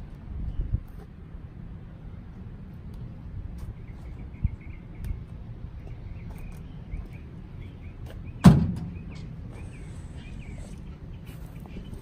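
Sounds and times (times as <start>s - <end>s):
birds chirping: 3.0s - 12.0s.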